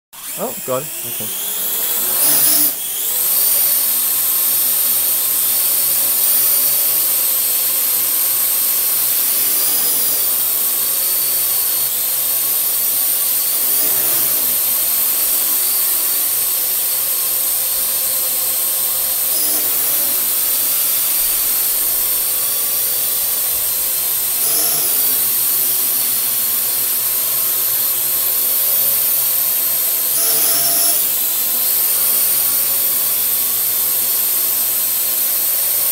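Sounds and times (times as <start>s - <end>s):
drone propellers whirring: 0.2s - 3.8s.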